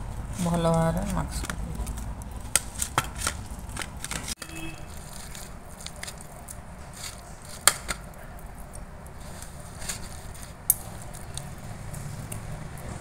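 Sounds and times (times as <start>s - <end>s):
hand squishing soft pumpkin: 0.0s - 13.0s
bangles knocking against steel: 10.7s - 11.1s.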